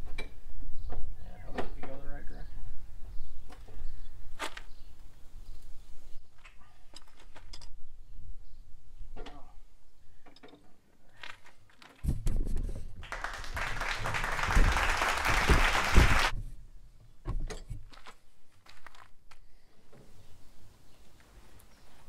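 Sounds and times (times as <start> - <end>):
low thumps: 13.6 - 16.6
loud burst of noise: 13.8 - 16.3.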